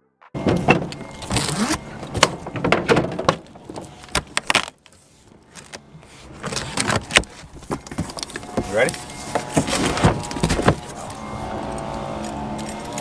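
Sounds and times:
cardboard rustling and scraping: 0:00.6 - 0:11.2.

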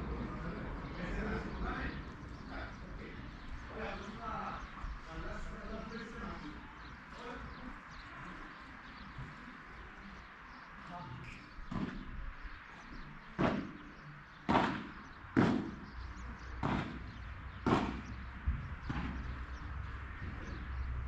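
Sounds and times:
padel balls struck and bouncing: 0:14.5 - 0:16.0, 0:16.6 - 0:19.6.

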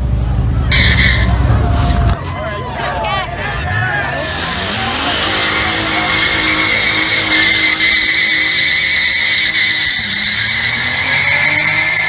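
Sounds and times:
tyres squealing: 0:00.7 - 0:12.0
engine revving high: 0:03.9 - 0:12.0.

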